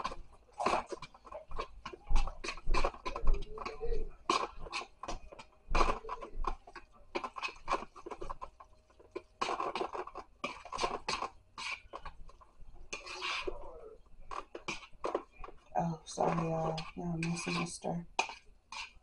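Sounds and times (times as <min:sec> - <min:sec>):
fork clinking and scraping bowl: 0:16.2 - 0:19.0.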